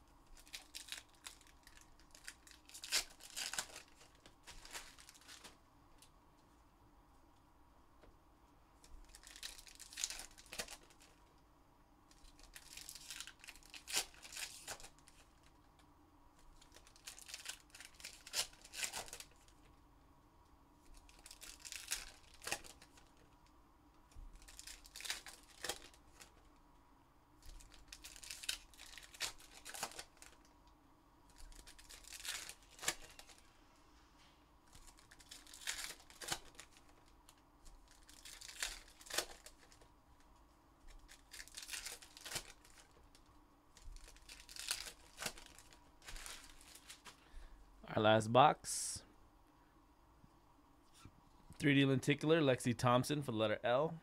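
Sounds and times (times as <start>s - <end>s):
card pack wrappers tearing: 0.3s - 5.6s, 9.0s - 11.2s, 12.1s - 15.6s, 16.6s - 19.6s, 20.9s - 23.2s, 24.4s - 26.4s, 27.4s - 30.5s, 31.3s - 33.5s, 34.7s - 39.9s, 40.9s - 47.2s.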